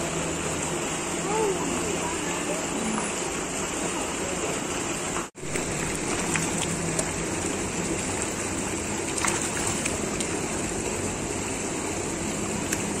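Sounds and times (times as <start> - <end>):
pond water rushing: 0.0 - 13.0
fish splashing: 5.4 - 10.9, 12.6 - 13.0.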